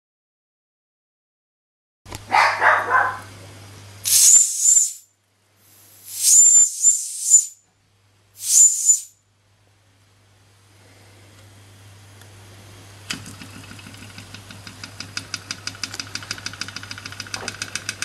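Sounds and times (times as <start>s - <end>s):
toy steam whistle blasts: 4.1s - 5.0s, 6.0s - 7.6s, 8.4s - 9.2s
faint steam hiss: 5.6s - 7.6s.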